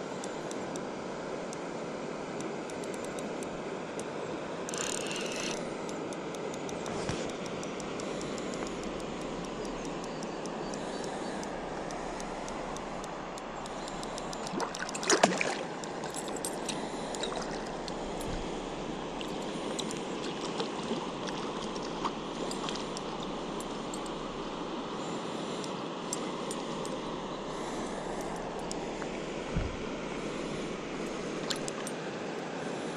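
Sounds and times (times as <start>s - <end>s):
river water flowing: 0.0s - 32.9s.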